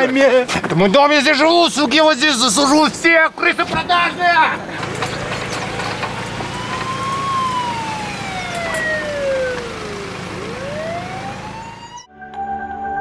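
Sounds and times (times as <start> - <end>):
steady musical tones: 3.9 - 12.1
police siren wailing: 4.8 - 12.1.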